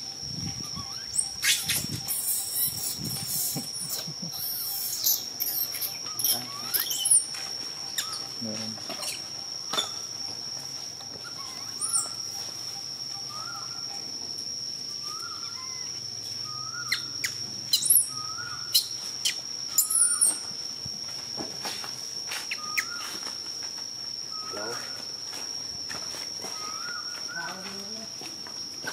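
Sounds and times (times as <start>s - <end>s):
sharp high bird chirps: 0.5s - 7.3s, 7.9s - 8.4s, 11.3s - 14.0s, 15.0s - 20.5s, 22.5s - 23.2s.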